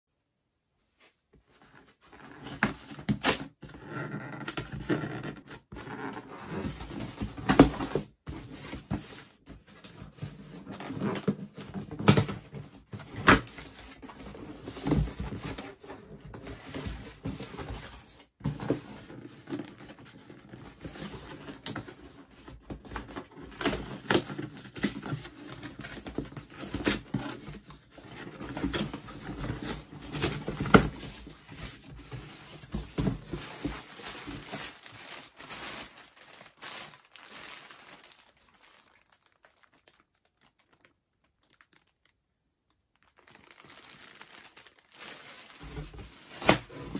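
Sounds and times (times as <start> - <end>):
plastic bag crinkling: 27.8 - 46.9
cardboard flap tearing: 45.0 - 46.9.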